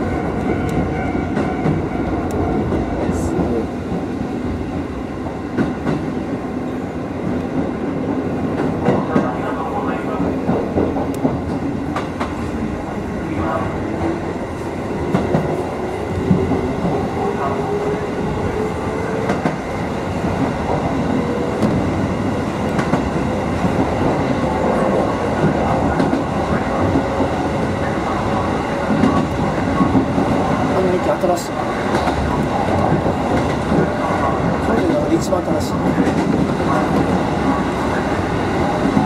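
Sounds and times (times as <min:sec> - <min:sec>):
rail joint clicks: 0:00.3 - 0:04.1, 0:05.2 - 0:06.2, 0:08.5 - 0:12.6, 0:19.1 - 0:19.6, 0:20.2 - 0:27.4, 0:28.8 - 0:37.6.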